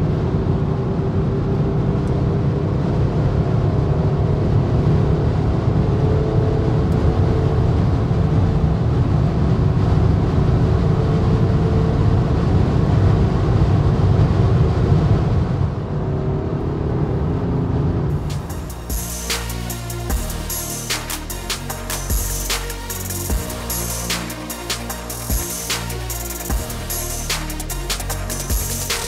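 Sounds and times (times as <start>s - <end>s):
roar of wind and tyres: 0.0s - 18.3s
low drone: 15.4s - 29.0s.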